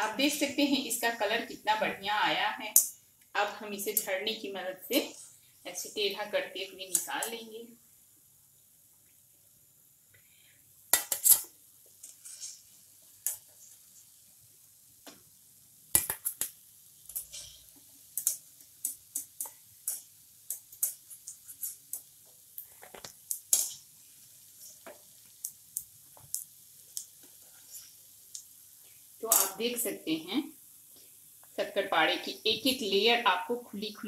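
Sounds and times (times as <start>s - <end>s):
faint oil sizzle: 0.0s - 34.0s
skimmer scraping and clinking on a pan: 11.0s - 12.7s, 17.1s - 17.7s, 23.5s - 23.9s.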